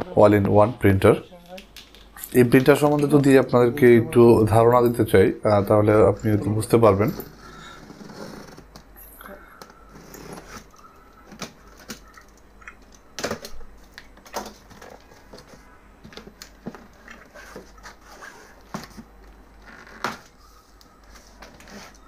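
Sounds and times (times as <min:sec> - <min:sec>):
paper and cardboard scraping: 0:16.9 - 0:19.0, 0:20.4 - 0:22.0.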